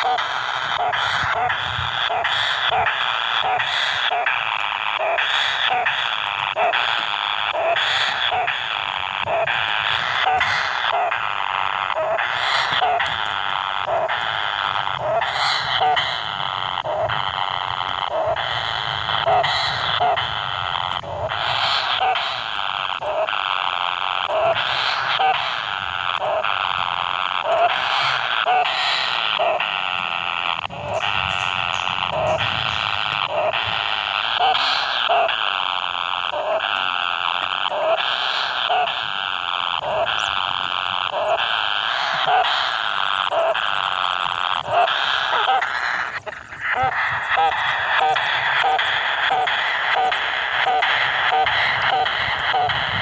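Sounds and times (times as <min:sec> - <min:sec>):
kingfisher nestlings begging: 0:00.0 - 0:53.0
bird nestlings begging calls: 0:00.8 - 0:04.1, 0:12.2 - 0:13.2, 0:15.1 - 0:16.4, 0:30.7 - 0:33.7.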